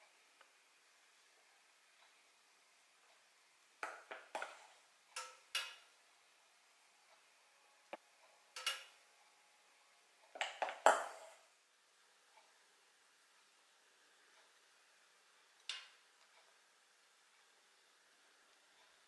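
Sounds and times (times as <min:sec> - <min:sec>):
metal spoon clinking on kitchenware: 0:08.6 - 0:09.0.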